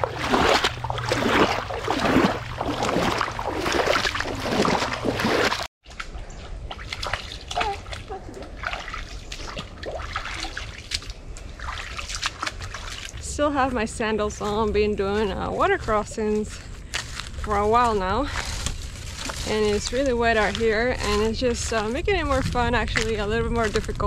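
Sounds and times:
light splashes and drips: 0.0s - 13.5s
wading through water: 0.0s - 24.0s.

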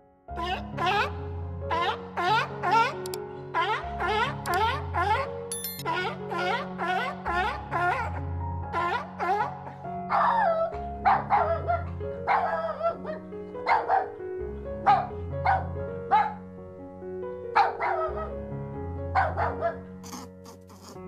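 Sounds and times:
dog barking and yipping: 8.8s - 14.2s, 14.8s - 16.4s, 17.6s - 18.3s, 19.2s - 19.9s.

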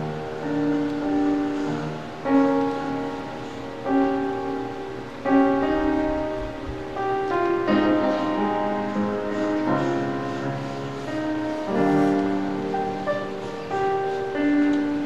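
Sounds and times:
slow keyboard chords: 0.0s - 15.0s.

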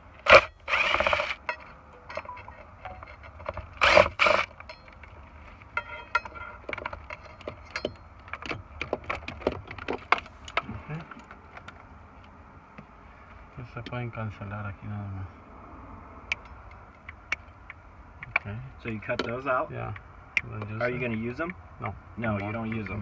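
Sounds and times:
cordless drill bursts: 0.3s - 1.4s.

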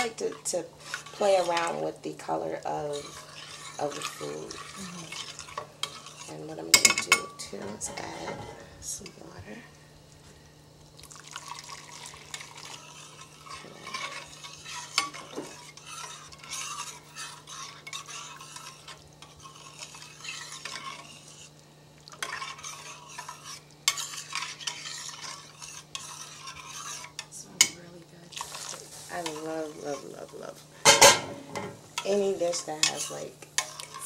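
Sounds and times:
metal spoon stirring in a pot: 0.0s - 9.3s, 11.1s - 34.0s
water poured into a pot: 11.0s - 12.9s.

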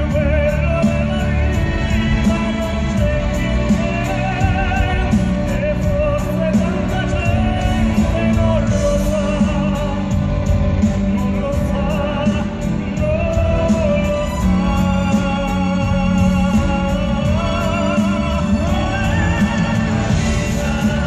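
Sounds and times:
orchestra playing: 0.0s - 21.0s
male vocal trio singing: 10.9s - 21.0s.

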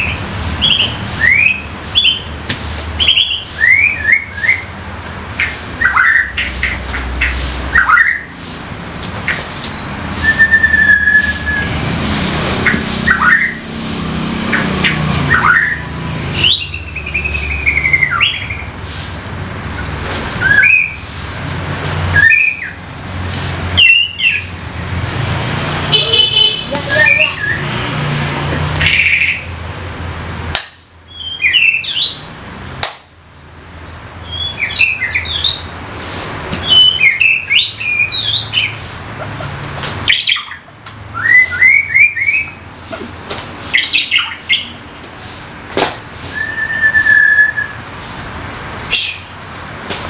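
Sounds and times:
bird chirping and whistling: 0.0s - 2.3s, 3.0s - 4.8s, 5.4s - 8.4s, 9.3s - 11.8s, 12.6s - 13.7s, 14.5s - 18.8s, 20.4s - 21.0s, 22.1s - 22.8s, 23.7s - 24.5s, 25.9s - 27.7s, 28.8s - 29.5s, 31.1s - 32.3s, 34.2s - 35.7s, 36.6s - 38.8s, 40.0s - 42.6s, 43.7s - 44.8s, 46.3s - 47.8s, 48.9s - 49.3s.

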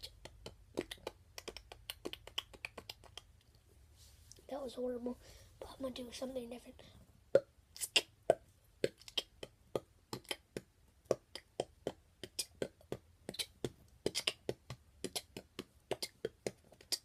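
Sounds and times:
child beatboxing: 0.0s - 3.4s, 7.4s - 17.0s.

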